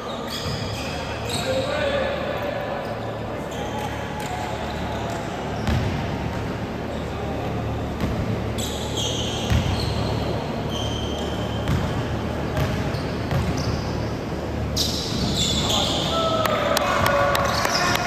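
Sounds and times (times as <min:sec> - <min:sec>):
sneaker squeaks: 0:00.0 - 0:02.0, 0:02.8 - 0:06.1, 0:07.9 - 0:16.4, 0:17.0 - 0:18.0
basketball bouncing on gym floor: 0:05.6 - 0:06.2, 0:09.5 - 0:10.0, 0:11.6 - 0:13.8.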